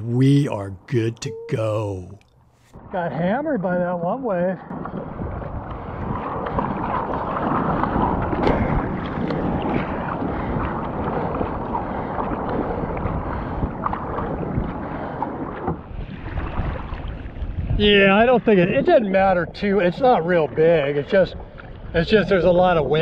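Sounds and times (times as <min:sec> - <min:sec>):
water sloshing around hull: 0:04.7 - 0:17.7
paddle splashing water: 0:06.0 - 0:17.4.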